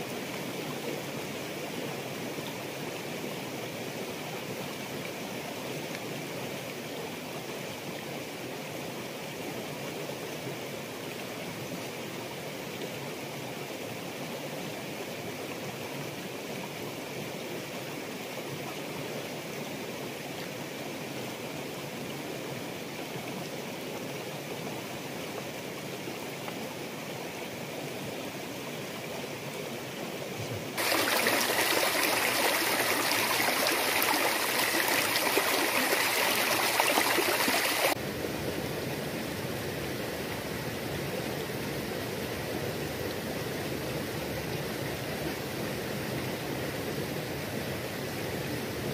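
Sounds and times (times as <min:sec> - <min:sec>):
shallow rocky stream rushing: 0:00.0 - 0:48.9
water running over stones: 0:30.4 - 0:38.0.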